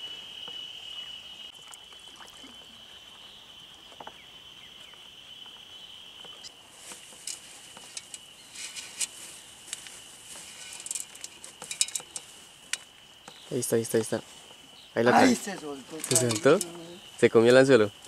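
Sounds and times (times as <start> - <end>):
high-pitched insect drone: 7.2 - 18.0.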